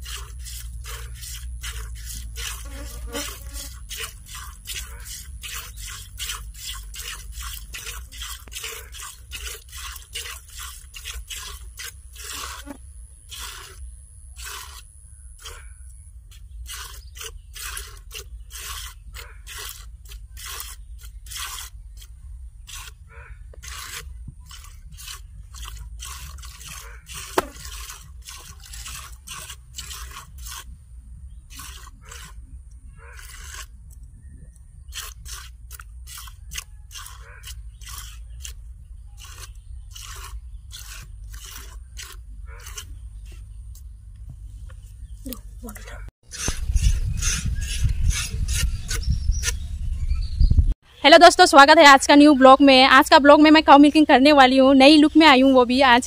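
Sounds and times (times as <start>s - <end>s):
milk squirting into a bowl: 0.0s - 15.6s, 16.4s - 22.0s, 23.6s - 30.8s.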